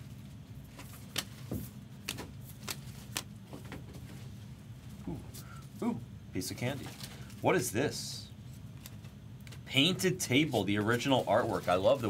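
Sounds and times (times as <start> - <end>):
trading cards flicking: 2.0 - 3.3.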